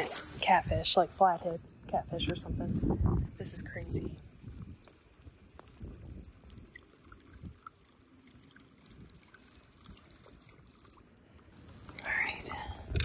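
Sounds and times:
water lapping against kayak: 0:04.5 - 0:12.0.

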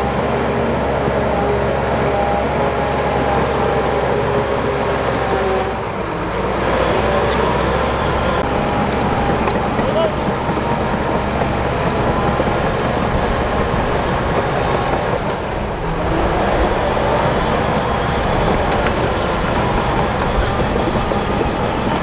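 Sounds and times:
bulldozer diesel engine under load: 0:00.0 - 0:22.0
steel tracks clattering: 0:06.9 - 0:22.0.

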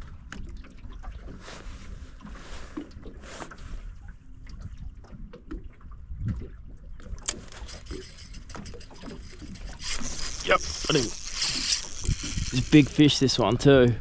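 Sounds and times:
water lapping against boat hull: 0:00.0 - 0:14.0
fishing rod and reel clicks: 0:07.2 - 0:14.0.

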